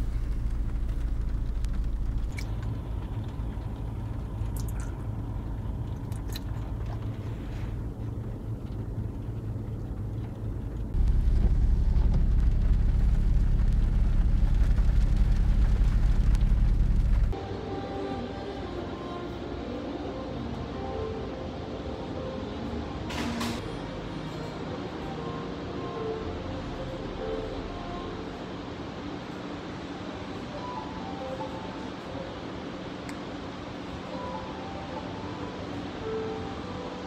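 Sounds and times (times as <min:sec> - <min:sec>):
car cabin rumble: 0:00.0 - 0:17.4.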